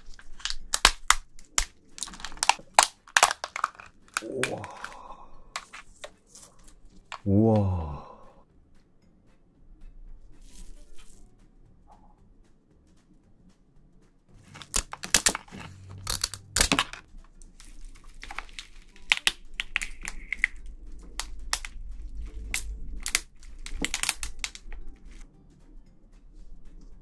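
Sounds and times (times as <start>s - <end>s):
crab shell cracking: 0.0s - 7.3s, 14.5s - 25.2s
plastic gloves crinkling: 0.0s - 7.3s, 14.4s - 25.2s
wet squelching: 0.0s - 7.4s.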